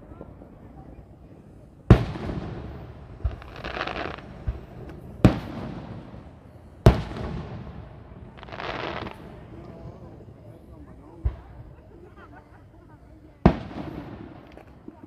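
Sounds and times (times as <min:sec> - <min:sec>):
firework crackling: 0:01.8 - 0:10.4, 0:13.3 - 0:15.0
soft firework thumps: 0:11.2 - 0:11.6.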